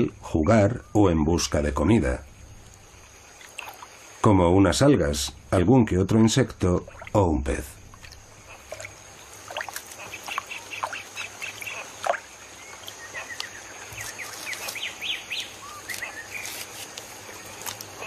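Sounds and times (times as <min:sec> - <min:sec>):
steady high whine: 0:04.1 - 0:10.0
high animal chirps: 0:08.0 - 0:16.8.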